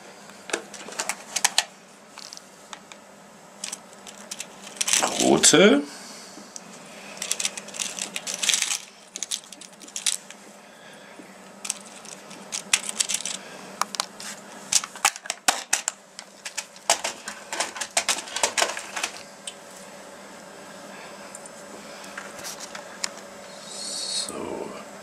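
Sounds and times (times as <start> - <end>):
leds clinking in plastic box: 0.6 - 2.4, 3.6 - 5.3, 7.2 - 10.4, 11.6 - 13.4, 14.8 - 19.2.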